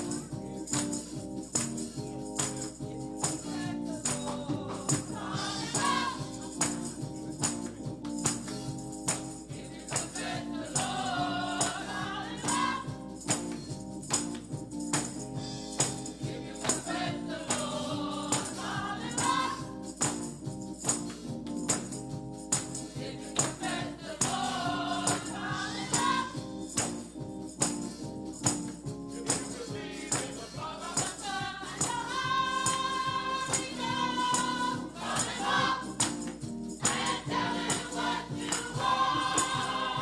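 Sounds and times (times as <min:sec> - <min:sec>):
gospel choir singing: 0:02.1 - 0:07.9, 0:09.1 - 0:13.5, 0:15.8 - 0:20.2, 0:22.6 - 0:27.0, 0:29.1 - 0:40.0.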